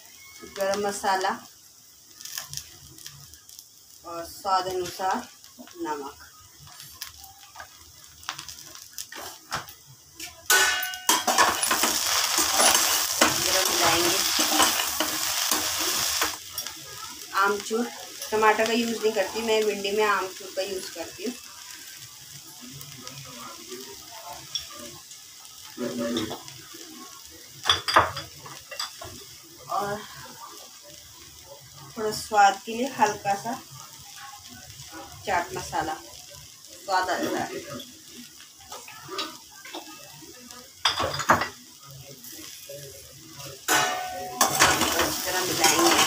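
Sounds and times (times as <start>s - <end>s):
food sizzling in a pan: 0.0s - 46.0s
kitchen utensils clattering: 10.5s - 16.4s, 40.9s - 41.6s, 43.7s - 46.0s
metal spatula scraping a pan: 10.5s - 16.7s, 43.7s - 46.0s.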